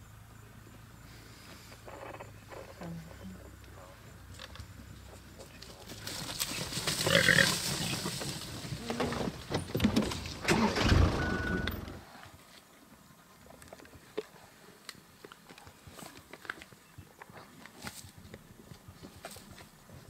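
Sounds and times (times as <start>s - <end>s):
rustling through bush: 1.0s - 10.9s
hyenas crunching on carcass: 4.5s - 10.4s, 13.4s - 20.0s
warthogs grunting: 6.9s - 8.1s.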